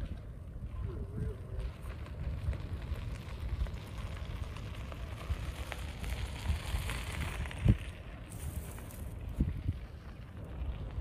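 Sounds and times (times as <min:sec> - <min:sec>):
wind on microphone: 0:00.0 - 0:11.0
fire crackling and popping: 0:01.4 - 0:11.0.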